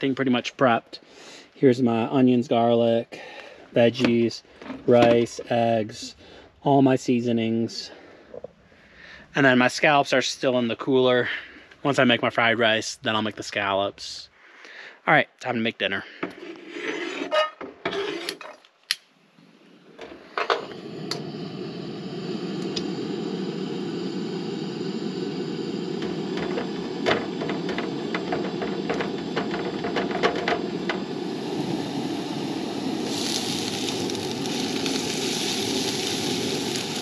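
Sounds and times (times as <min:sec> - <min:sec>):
spatula scraping a frying pan: 0:16.4 - 0:18.4
gas burner flame running: 0:19.8 - 0:37.0
onions sizzling: 0:20.8 - 0:37.0
stove igniter click: 0:22.6 - 0:23.0.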